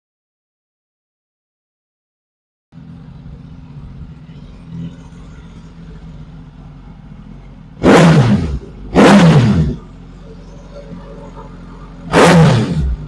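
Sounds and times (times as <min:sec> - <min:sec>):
motorcycle engine idling: 0:02.8 - 0:13.0.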